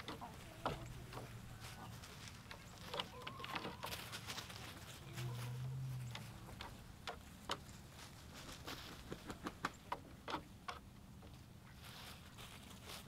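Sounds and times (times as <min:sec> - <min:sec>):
chicken feet tapping on wood: 0:00.0 - 0:01.4, 0:06.1 - 0:07.7.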